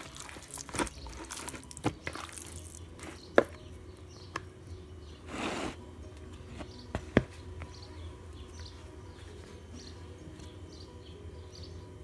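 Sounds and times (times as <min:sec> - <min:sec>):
hand squishing wet fish: 0:00.0 - 0:03.1.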